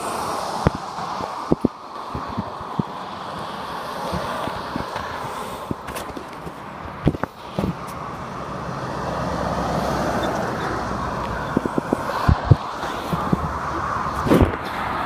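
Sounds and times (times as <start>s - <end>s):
road traffic passing: 0.0s - 15.0s
lorry passing: 7.9s - 15.0s.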